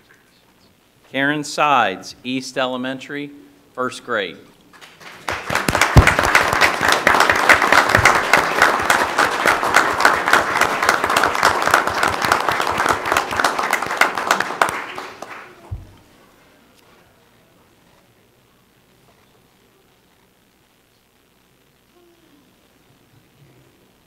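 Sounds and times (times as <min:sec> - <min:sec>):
audience applauding: 0:04.7 - 0:15.7.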